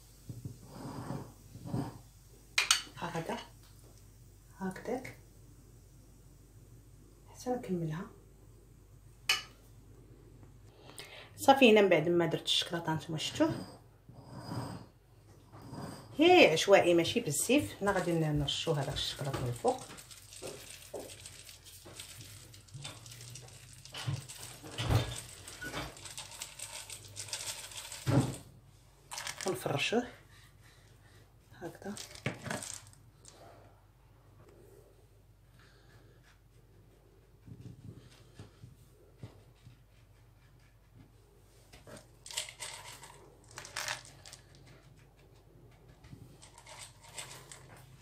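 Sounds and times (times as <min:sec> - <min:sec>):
sprinkles rustling: 0:17.9 - 0:28.4, 0:29.1 - 0:29.7, 0:32.0 - 0:33.0, 0:42.2 - 0:44.4, 0:46.4 - 0:47.8.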